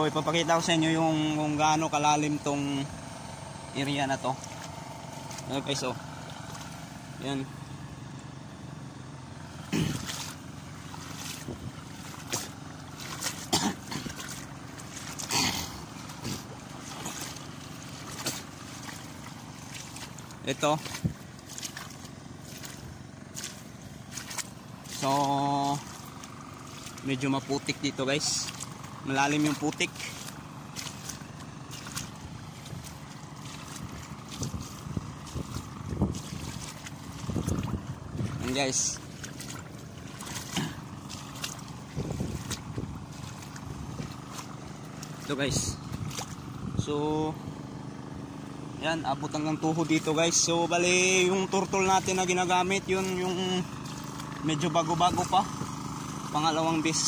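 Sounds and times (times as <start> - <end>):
feet sloshing through water and mud: 0.0 - 57.0
low engine hum: 0.0 - 57.0
wind on microphone: 34.4 - 36.6, 37.2 - 38.4, 41.9 - 44.2.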